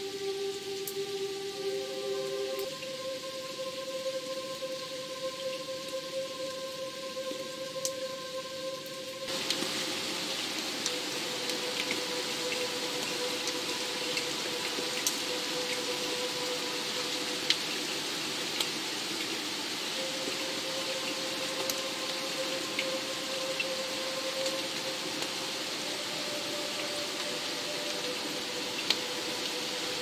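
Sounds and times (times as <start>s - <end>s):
low ambient music note: 0.0s - 30.0s
steady rain hiss: 0.0s - 30.0s
raindrops ticking: 7.4s - 8.2s, 8.8s - 30.0s.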